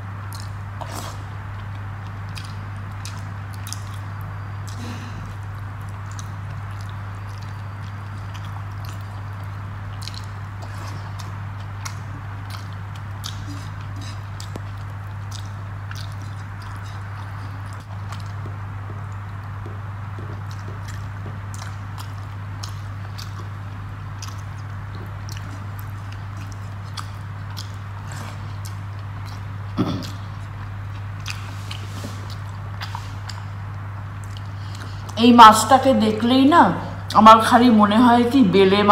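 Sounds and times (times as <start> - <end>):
steady low hum: 0.0 - 38.9
person chewing: 0.2 - 35.2
throat sound: 28.0 - 30.5.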